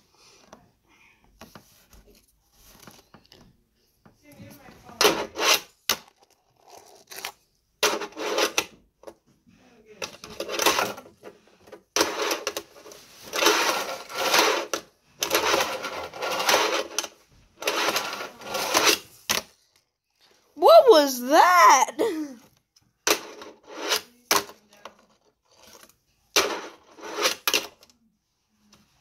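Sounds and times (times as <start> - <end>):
fingerboard wheels rolling on ramp: 13.3 - 19.0.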